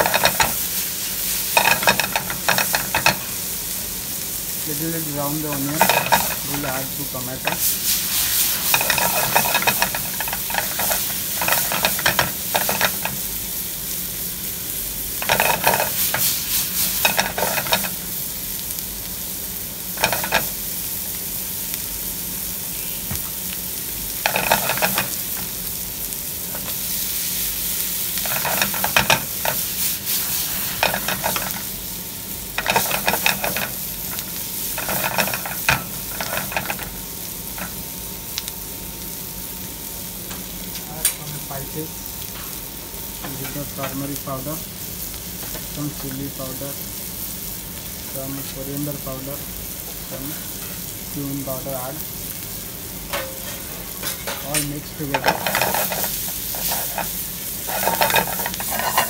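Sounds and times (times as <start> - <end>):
stirring scraping against pan: 0.0 - 3.4, 5.1 - 13.3, 15.2 - 18.0, 20.0 - 20.6, 24.2 - 25.3, 28.2 - 31.7, 32.6 - 37.0, 54.1 - 59.0
onions sizzling in hot oil: 0.0 - 59.0.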